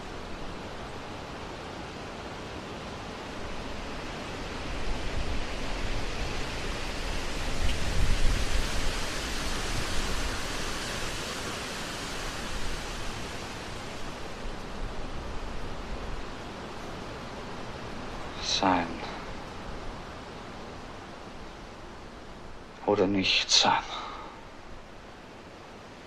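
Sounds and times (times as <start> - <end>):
wind rushing through woodland: 0.0 - 26.0
wind rumbling on microphone: 3.2 - 18.4.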